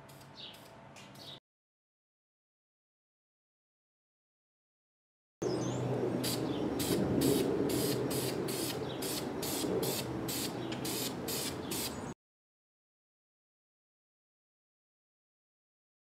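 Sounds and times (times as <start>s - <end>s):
spray paint can hissing: 6.2s - 12.1s.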